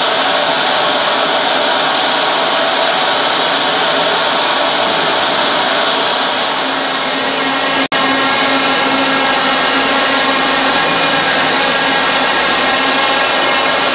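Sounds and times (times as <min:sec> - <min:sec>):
rushing machinery hiss: 0:00.0 - 0:13.9.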